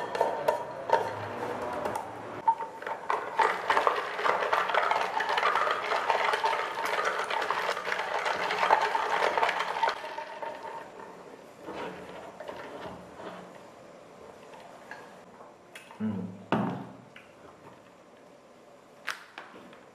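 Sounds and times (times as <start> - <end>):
ice cubes clinking in plastic cup: 2.5 - 10.6.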